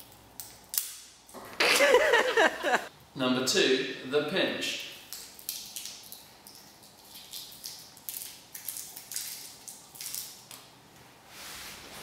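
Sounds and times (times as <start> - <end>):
garlic skin crackling: 4.9 - 10.7.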